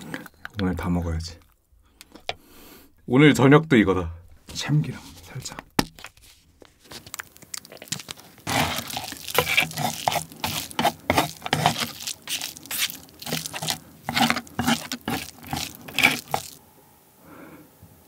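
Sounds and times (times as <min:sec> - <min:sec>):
seaweed chips crunching and crackling: 0:05.4 - 0:16.6
wet squishing: 0:05.8 - 0:16.6.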